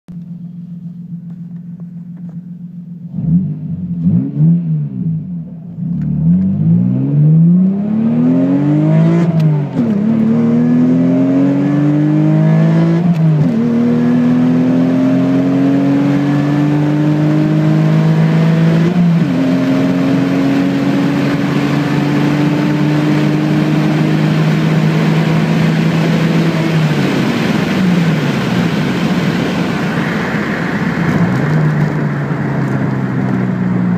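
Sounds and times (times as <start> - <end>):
car engine revving and accelerating: 3.0 - 33.9.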